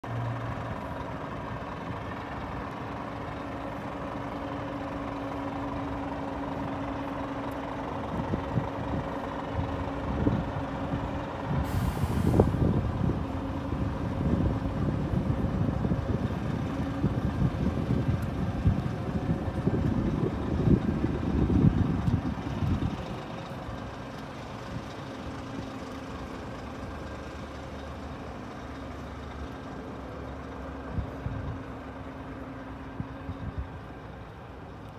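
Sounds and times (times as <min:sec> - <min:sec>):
truck mechanical hum: 0:00.0 - 0:34.9
wind buffeting microphone: 0:08.0 - 0:25.0, 0:30.8 - 0:31.8, 0:32.8 - 0:34.0
compressed air hiss: 0:11.6 - 0:12.6.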